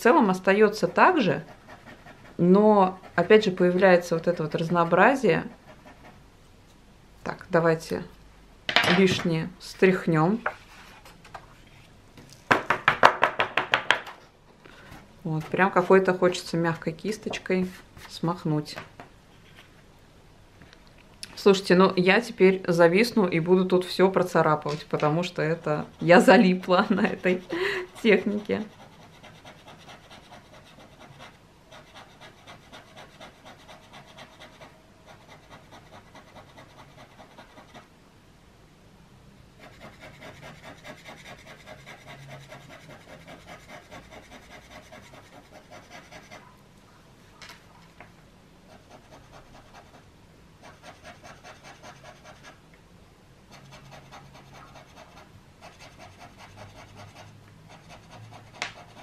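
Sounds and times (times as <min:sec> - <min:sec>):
palette knife scraping on paper: 0:28.0 - 0:37.9, 0:39.6 - 0:46.4, 0:53.5 - 0:59.0.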